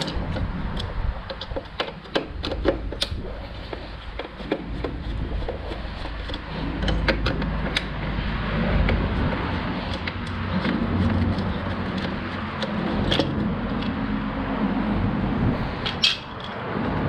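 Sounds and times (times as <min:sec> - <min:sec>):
plastic parts clicking: 0:00.0 - 0:08.0
steady noise: 0:00.0 - 0:17.0
low rumble: 0:04.7 - 0:17.0.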